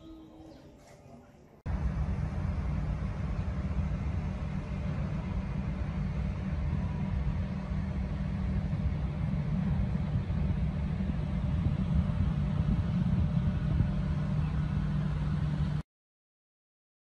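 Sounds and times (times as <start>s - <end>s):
distant city traffic rumble: 1.7s - 15.8s.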